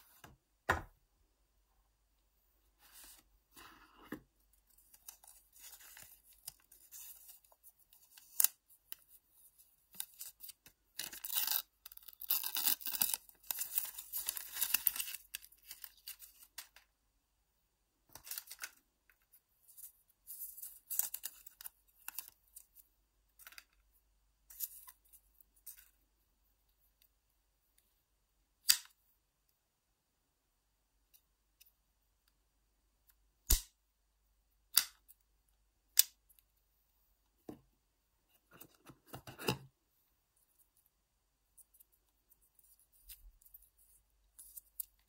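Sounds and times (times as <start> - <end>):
plastic film crinkling and tearing: 11.0 - 16.2.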